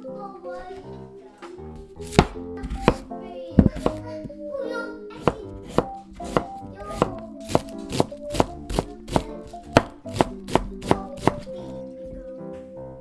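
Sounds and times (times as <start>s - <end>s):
knife chopping on wooden board: 2.0s - 4.0s, 5.2s - 11.5s.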